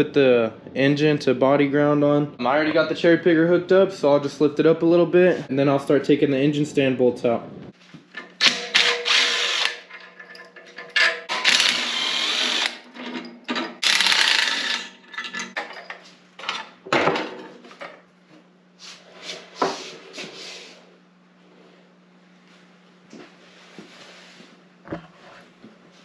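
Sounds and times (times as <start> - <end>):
power driver spinning: 8.3 - 15.6
metal clanks and scrapes: 9.8 - 11.3, 12.8 - 13.8, 14.8 - 18.0.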